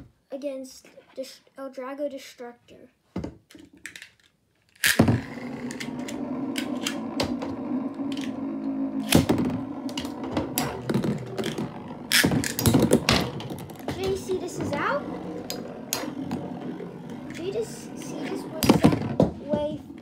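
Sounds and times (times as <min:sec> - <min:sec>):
spinning tops whirring: 0:04.8 - 0:20.0.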